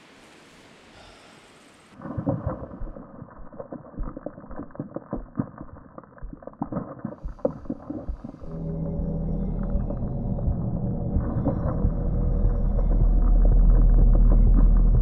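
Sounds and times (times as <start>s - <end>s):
crackling rumble of thumps and pops: 2.0s - 15.0s
low musical drone: 8.5s - 15.0s.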